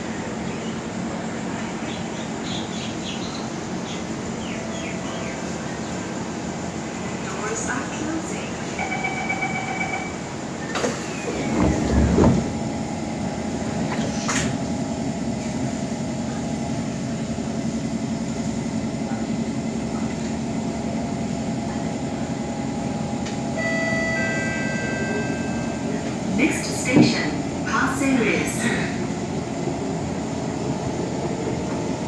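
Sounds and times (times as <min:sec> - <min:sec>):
stationary train car hum: 0:00.0 - 0:32.0
train doors sliding shut: 0:10.6 - 0:12.8, 0:13.6 - 0:14.6, 0:23.2 - 0:27.4.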